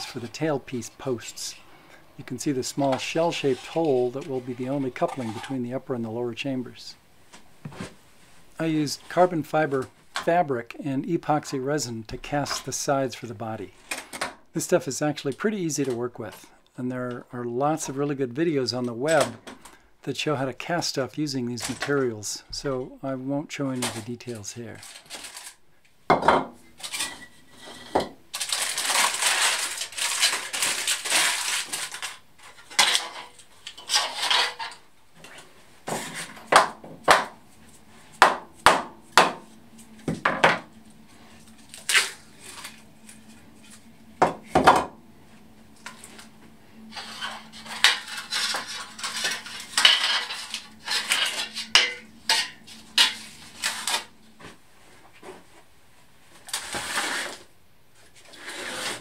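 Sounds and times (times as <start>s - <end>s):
aluminium foil crackling: 23.8s - 25.6s, 26.8s - 36.5s, 40.7s - 43.9s, 45.7s - 54.5s
objects knocking on steel workbench: 26.1s - 26.6s.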